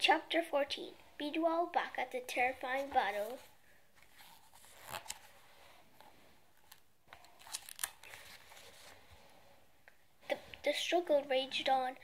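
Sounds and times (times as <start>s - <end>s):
book pages rustling: 2.6s - 9.3s.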